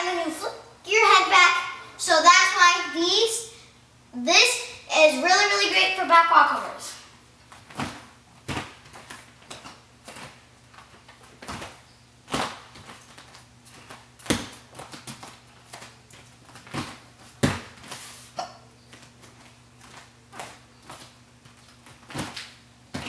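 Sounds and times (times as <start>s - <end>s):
faint steady hum: 0.0s - 23.0s
thuds and slaps on gym mats: 7.6s - 15.9s, 16.5s - 18.0s, 21.9s - 23.0s.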